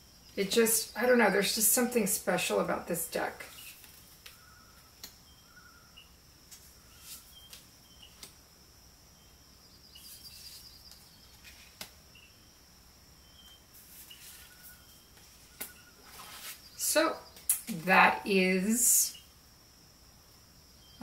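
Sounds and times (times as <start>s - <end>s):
room hiss: 0.0s - 21.0s
cards sliding from a deck: 10.0s - 12.0s, 15.6s - 16.7s.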